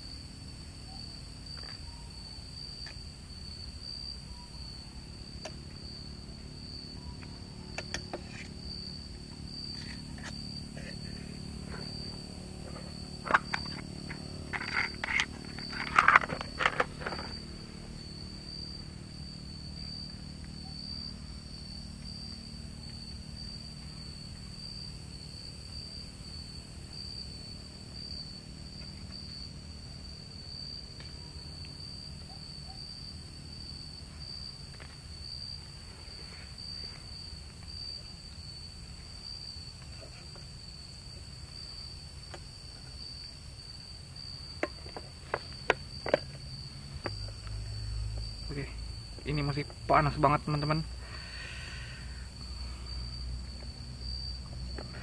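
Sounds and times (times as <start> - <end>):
insects trilling: 0.0 - 55.0.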